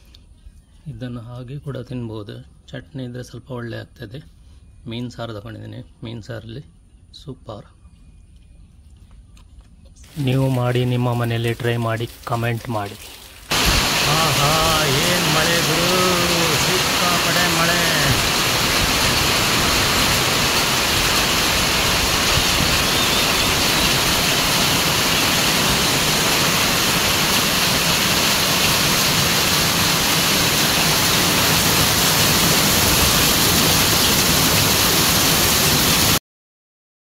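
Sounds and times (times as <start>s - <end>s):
heavy rain on foliage: 10.0s - 36.2s.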